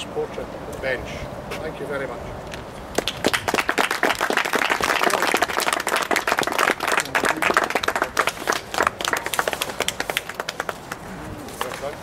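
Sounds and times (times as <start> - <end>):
people clapping: 2.9 - 11.9.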